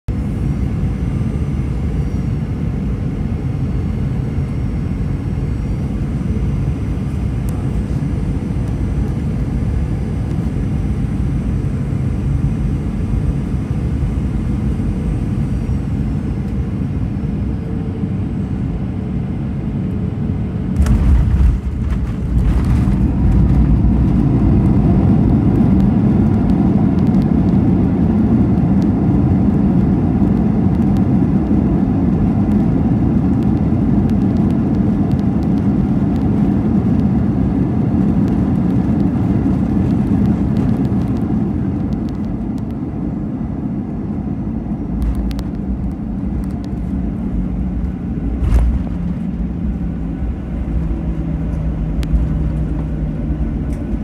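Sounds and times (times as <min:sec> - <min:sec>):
jet engine and airflow roar: 0:00.1 - 0:54.0
reverse thrust roar: 0:20.5 - 0:28.4.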